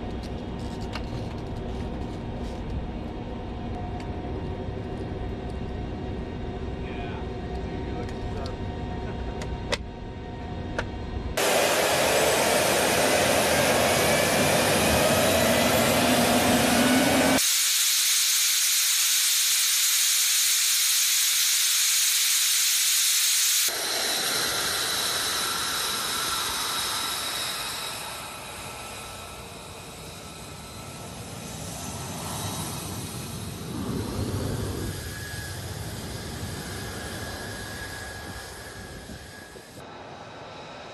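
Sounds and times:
jet engine hiss and whine: 0.0 - 40.9.

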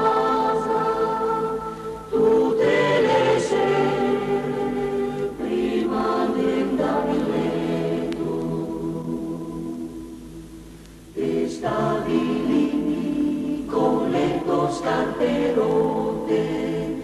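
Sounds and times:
choir singing held chords: 0.0 - 17.0.

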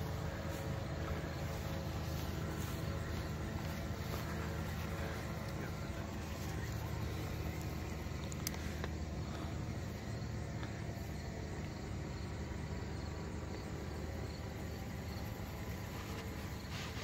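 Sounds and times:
distant paraplane engine drone: 0.0 - 17.0.

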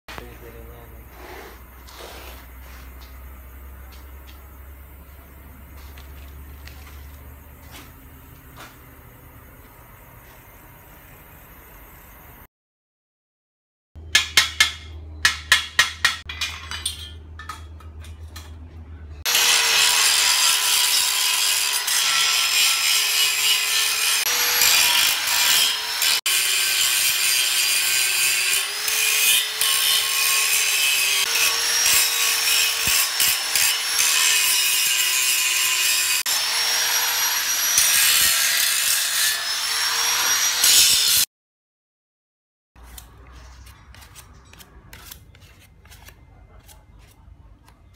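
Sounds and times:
sharp metal knocks: 14.0 - 18.2
angle grinder grinding steel: 19.2 - 41.3.

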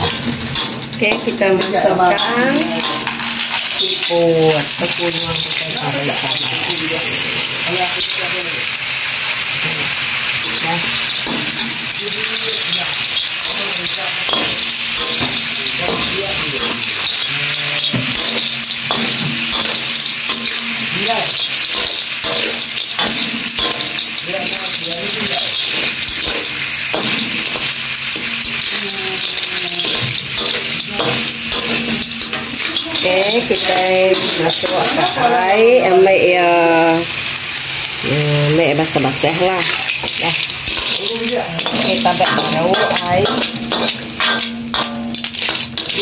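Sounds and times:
snails sizzling in hot oil: 0.0 - 46.0
metal spatula scraping a wok: 38.9 - 46.0.

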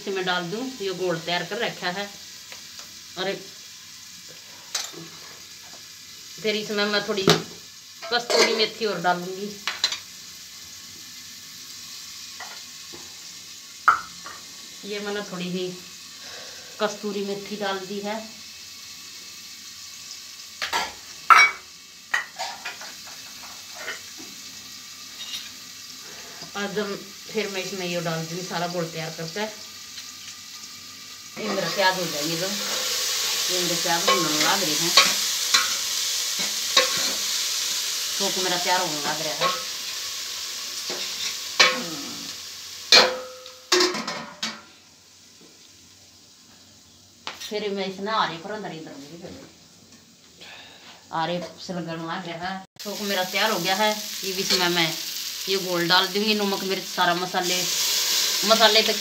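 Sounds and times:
onions frying in oil: 0.0 - 59.0
steel cookware clanking: 8.0 - 8.7, 20.6 - 24.0, 34.0 - 35.8, 36.4 - 37.2, 39.4 - 39.7, 42.9 - 44.6.

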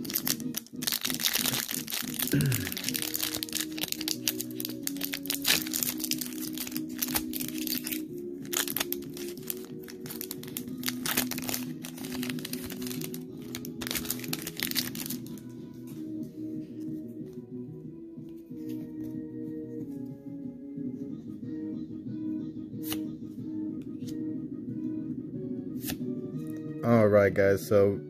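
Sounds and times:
foil wrappers crinkling: 0.0 - 15.4
background music with held notes: 0.0 - 28.0.

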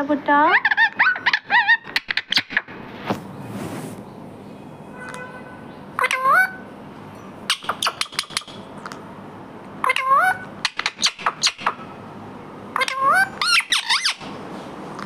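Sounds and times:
parrot calling: 0.4 - 2.8, 5.9 - 6.7, 7.4 - 8.7, 9.8 - 12.0, 12.7 - 14.4.

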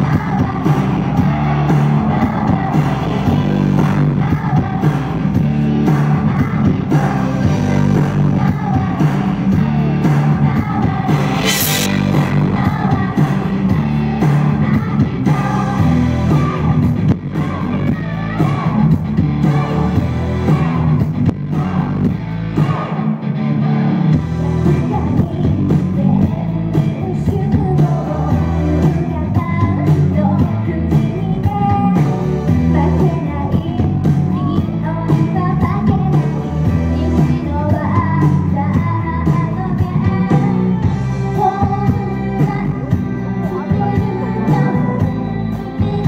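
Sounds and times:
group of women singing: 0.0 - 23.0
amplified backing track with bass: 0.0 - 46.0.

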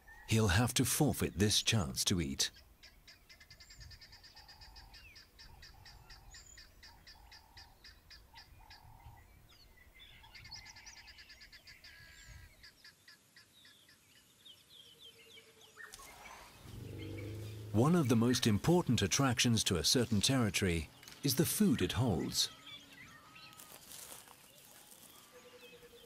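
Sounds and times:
repeated low bird note: 16.6 - 18.9.

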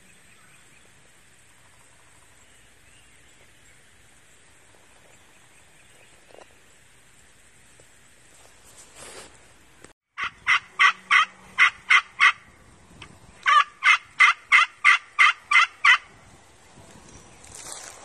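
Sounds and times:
turkey call yelps: 10.2 - 12.5, 13.4 - 16.1.

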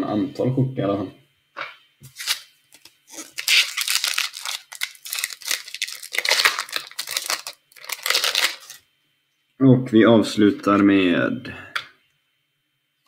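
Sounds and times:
wrapper tearing and crinkling: 2.1 - 8.8.

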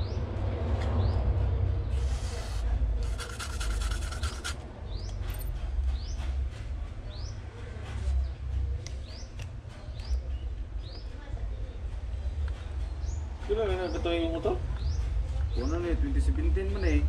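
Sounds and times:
quick rubbing strokes: 1.9 - 4.6.

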